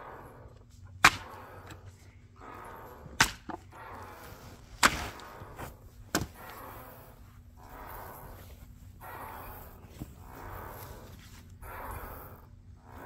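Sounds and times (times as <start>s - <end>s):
axe chopping into wood: 1.0s - 1.4s, 3.2s - 3.6s, 4.8s - 5.2s, 6.1s - 6.4s.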